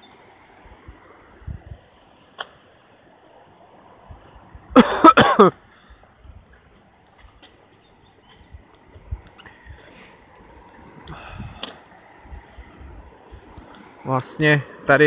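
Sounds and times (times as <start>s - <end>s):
person coughing: 4.8s - 5.5s.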